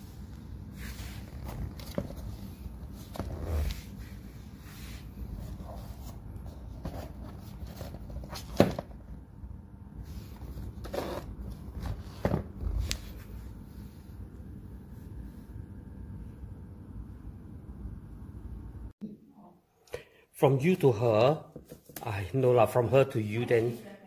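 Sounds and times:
low steady rumble: 0.0s - 19.0s
shoes being handled: 0.7s - 4.0s, 5.2s - 9.0s.

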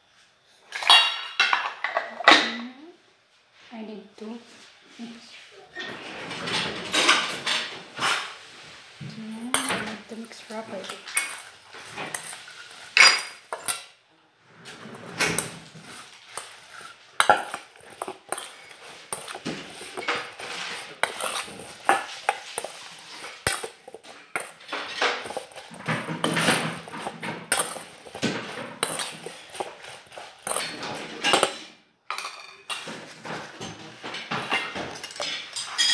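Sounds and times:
spoon clinking in metal bowl: 16.3s - 32.8s, 34.5s - 35.9s.

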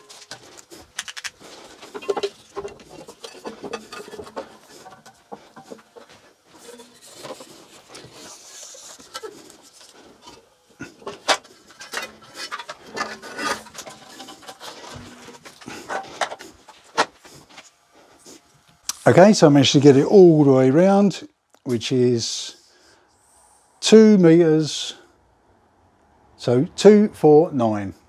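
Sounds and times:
tape rubbing against bandsaw wheels: 0.0s - 19.2s.

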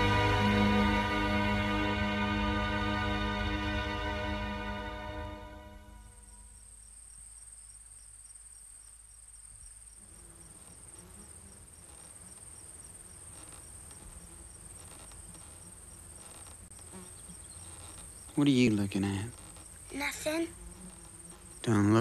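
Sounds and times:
music: 0.0s - 6.5s
cricket chirping slowly: 5.8s - 22.0s
crickets trilling: 6.1s - 22.0s.

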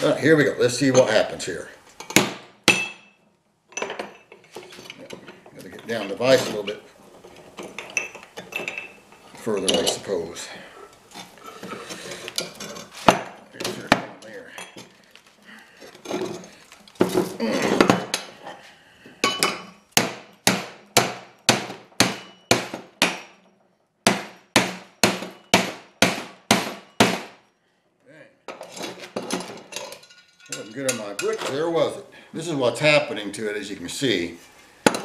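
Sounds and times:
hammer striking metal: 2.1s - 3.2s, 19.3s - 23.4s, 24.1s - 27.5s.

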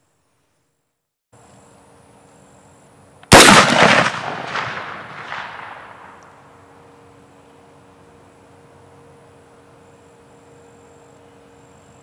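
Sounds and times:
rifle shot with echo: 3.3s - 6.5s.

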